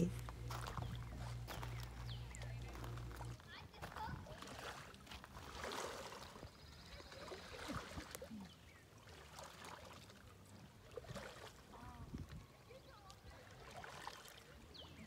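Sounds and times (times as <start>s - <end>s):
paddle splashing in water: 4.0s - 15.0s.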